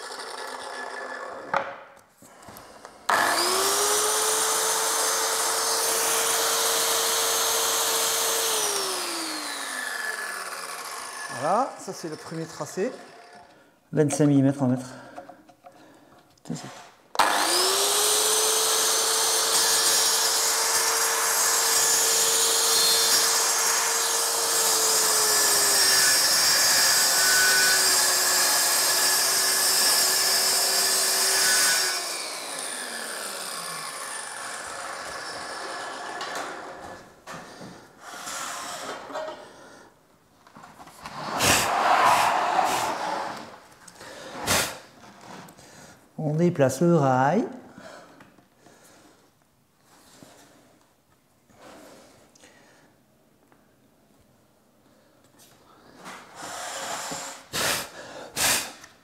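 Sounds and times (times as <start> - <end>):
saw spinning down: 0.0 - 1.5, 3.1 - 13.5, 17.2 - 36.9, 41.1 - 43.6
circular saw cutting panel: 3.1 - 13.5, 17.2 - 36.8.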